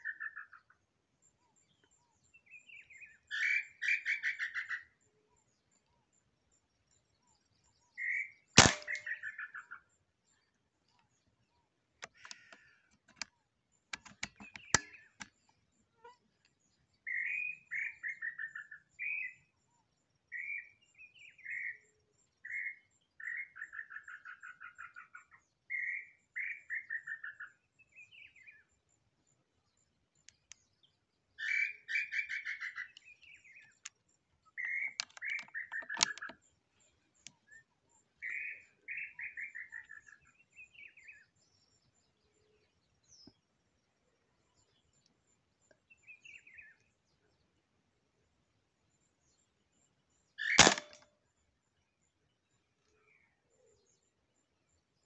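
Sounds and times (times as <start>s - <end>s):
bird calling in falling trills: 2.6s - 5.0s, 31.4s - 33.7s, 50.4s - 51.0s
sharp clicks: 8.6s - 9.0s, 12.0s - 13.3s, 13.9s - 15.3s, 34.9s - 36.4s, 50.4s - 51.1s.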